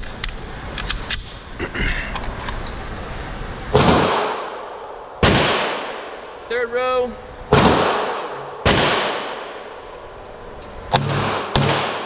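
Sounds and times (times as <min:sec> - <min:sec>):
pistol handling clicks: 0:00.0 - 0:01.4
gunshots echoing indoors: 0:03.7 - 0:06.4, 0:07.5 - 0:09.8, 0:10.9 - 0:12.0.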